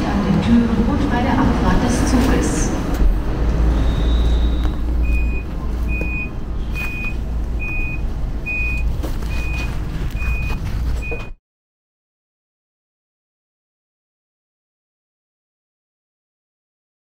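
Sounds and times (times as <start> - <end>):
train low rumble: 0.0 - 11.4
short high beeps: 3.8 - 9.6.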